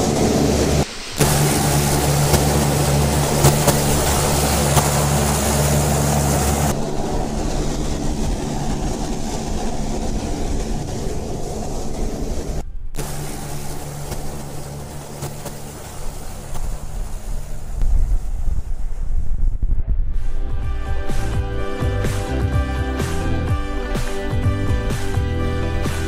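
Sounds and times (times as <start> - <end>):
rushing hiss: 0.0 - 19.4
engine droning: 0.0 - 26.0.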